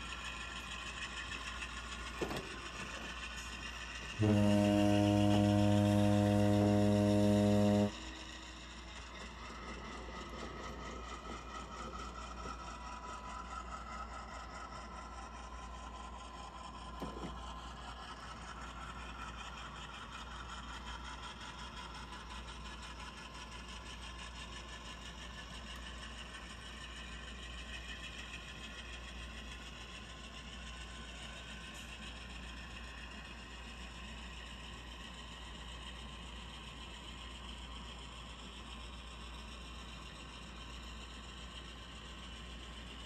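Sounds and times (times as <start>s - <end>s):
model train motor whirring: 0.0s - 43.0s
low horn-like tone: 4.1s - 8.5s.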